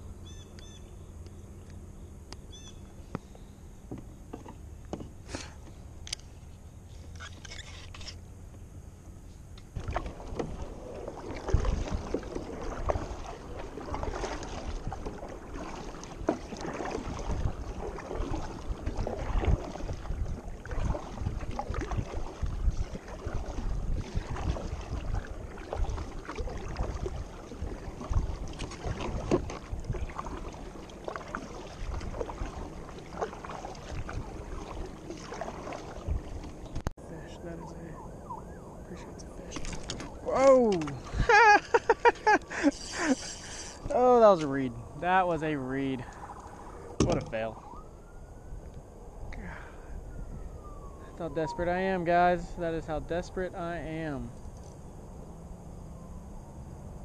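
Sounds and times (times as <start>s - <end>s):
kayak paddle splashing: 9.6s - 49.9s.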